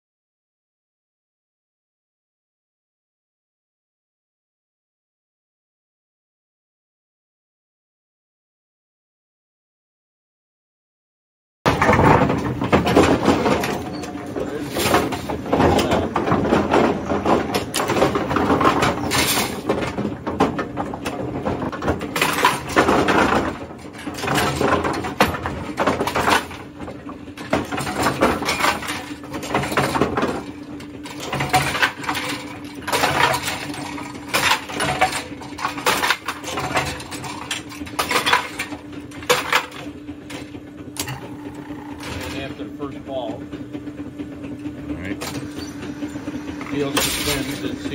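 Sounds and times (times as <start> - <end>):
bowling pins clattering: 11.7 - 43.6, 44.4 - 47.9
metallic clanks and rattles: 11.7 - 43.6, 44.2 - 47.9
motor hum: 11.7 - 47.9.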